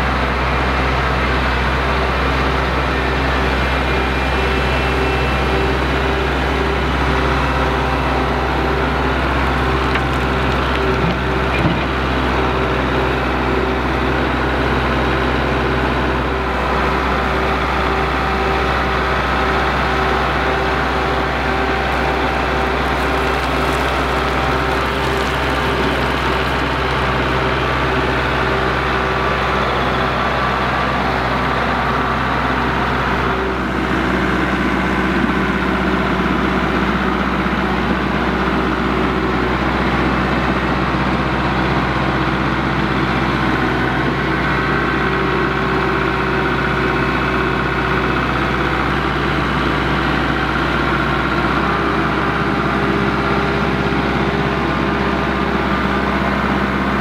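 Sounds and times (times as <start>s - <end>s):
tractor diesel engine running: 0.0s - 57.0s
soil pouring from bucket: 8.9s - 12.0s, 20.3s - 29.0s.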